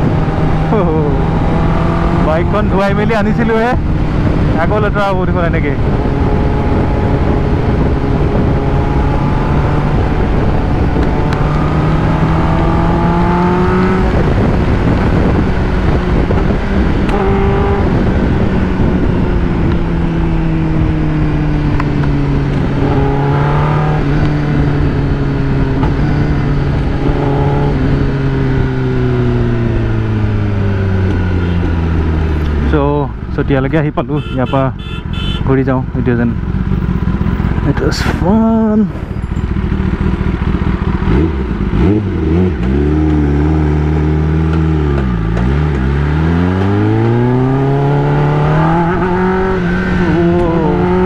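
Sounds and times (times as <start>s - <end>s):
wind rush over microphone: 0.0s - 30.8s
motorcycle engine running: 0.0s - 51.0s.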